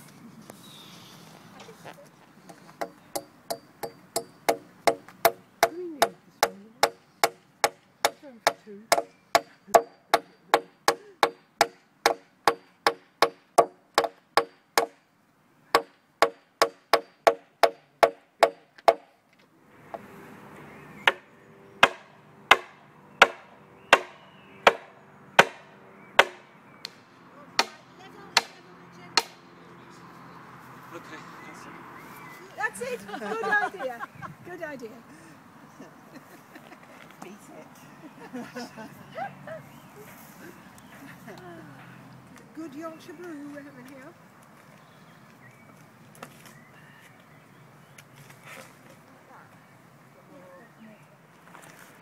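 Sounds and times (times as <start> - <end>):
hammer striking nails into wood: 2.8 - 15.0, 15.8 - 19.1, 21.8 - 27.0.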